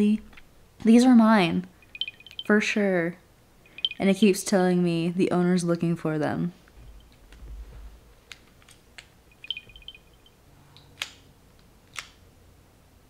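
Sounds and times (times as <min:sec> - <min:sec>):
high chirping beeps: 0:01.8 - 0:02.8, 0:03.6 - 0:04.4, 0:09.3 - 0:10.3.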